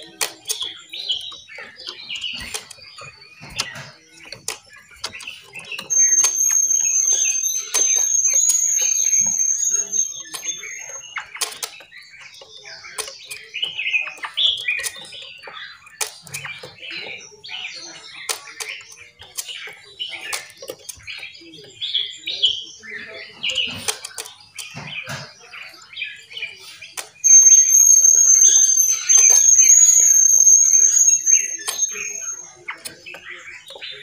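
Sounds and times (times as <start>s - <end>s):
songbirds chirping: 0.0s - 34.0s
steady high-pitched tone: 5.8s - 11.0s, 27.2s - 32.4s.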